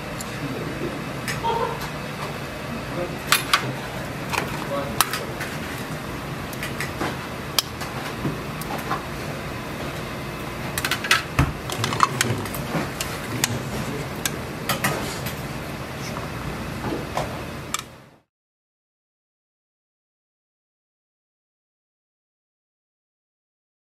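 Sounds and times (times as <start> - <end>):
utensils clinking on steel bowls: 4.3 - 5.5, 10.8 - 15.0.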